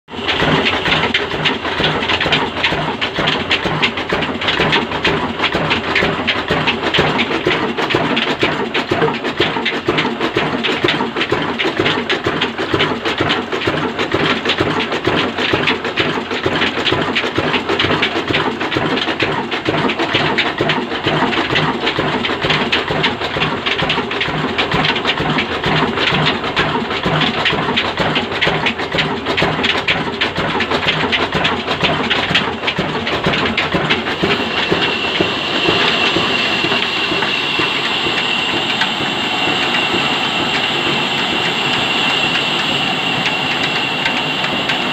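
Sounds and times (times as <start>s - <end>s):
mechanical clatter: 0.1s - 44.9s
stationary engine beating rhythmically: 0.1s - 44.9s
steady high whine: 32.5s - 44.9s.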